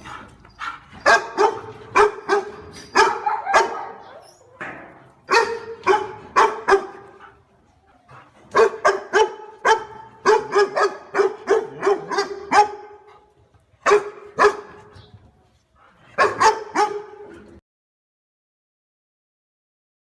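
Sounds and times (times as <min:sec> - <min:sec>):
dog barking: 0:00.1 - 0:04.2, 0:05.3 - 0:07.4, 0:08.5 - 0:13.2, 0:13.8 - 0:14.9, 0:16.2 - 0:17.4.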